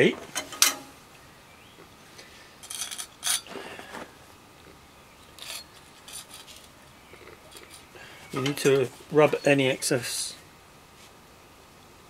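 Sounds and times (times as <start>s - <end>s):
metal tool scraping stone: 2.6s - 3.5s.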